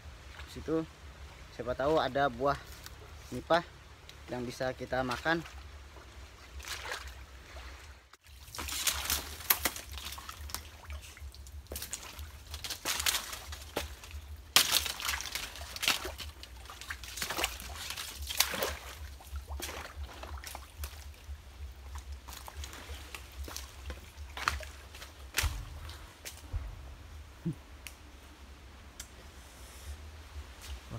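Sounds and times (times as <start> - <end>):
footsteps sloshing through water: 0.1 - 3.4, 4.1 - 26.8
dry fronds rustling and snapping: 1.8 - 5.6, 8.1 - 26.8, 27.7 - 29.2.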